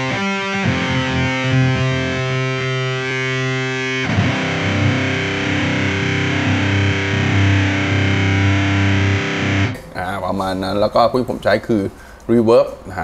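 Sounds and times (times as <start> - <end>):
electric guitar with fuzz and vibrato: 0.0 - 10.1.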